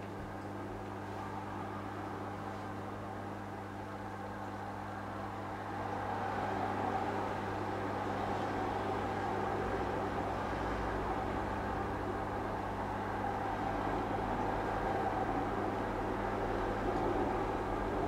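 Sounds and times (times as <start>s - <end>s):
aquarium pump hum: 0.0s - 18.0s.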